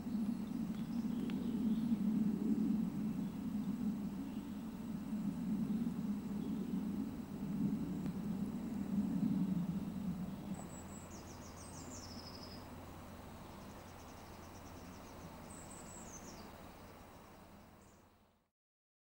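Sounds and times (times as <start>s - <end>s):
low rumble: 0.0s - 17.8s
songbird trilling: 8.8s - 18.0s.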